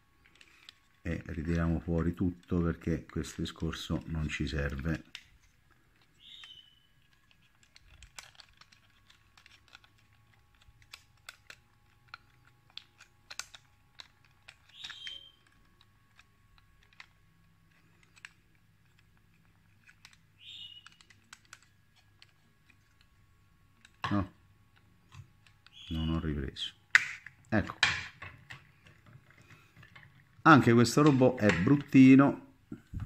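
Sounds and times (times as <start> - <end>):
faint steady hum: 0.0 - 33.0
toy robot parts clicking: 3.3 - 23.1.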